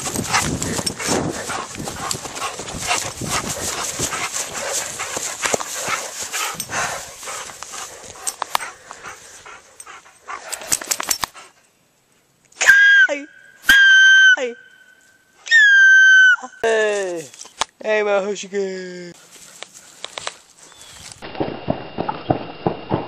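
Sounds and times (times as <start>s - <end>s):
dry grass rustling and crackling: 0.0s - 9.8s, 16.6s - 22.4s.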